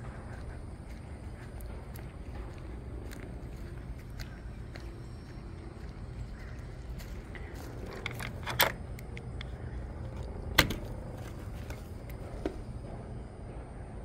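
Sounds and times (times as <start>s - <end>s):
low steady rumble: 0.0s - 14.0s
metal latch clicking and clinking: 7.9s - 12.3s.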